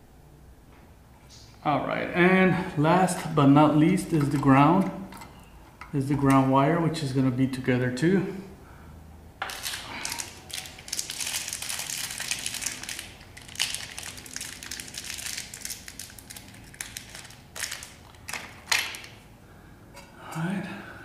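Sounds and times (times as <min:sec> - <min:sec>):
crinkling handling noise: 0:09.4 - 0:19.3.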